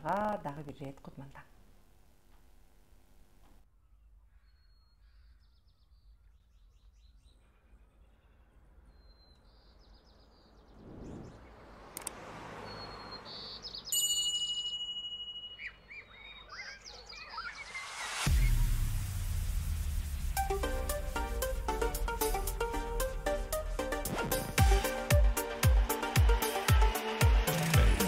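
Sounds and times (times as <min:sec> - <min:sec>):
birds chirping and trilling: 0:03.7 - 0:14.2, 0:15.4 - 0:18.6
rush of noise: 0:10.7 - 0:12.1.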